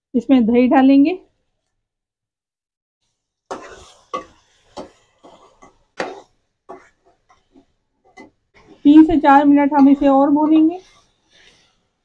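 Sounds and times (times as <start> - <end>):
meat frying: 3.0 - 12.0
metal spoon scraping a pot: 3.5 - 12.0.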